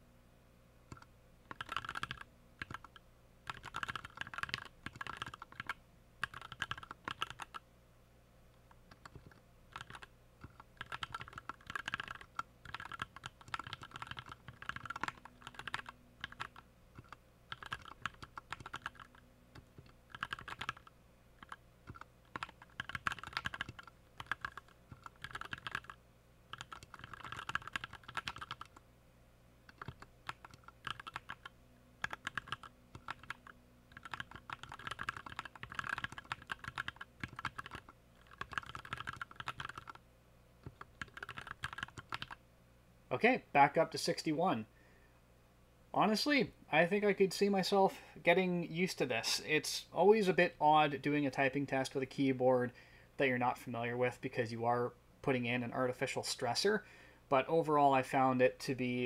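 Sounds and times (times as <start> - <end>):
mechanical keyboard typing: 0.9 - 7.6, 8.9 - 28.8, 29.7 - 40.0, 40.6 - 42.4.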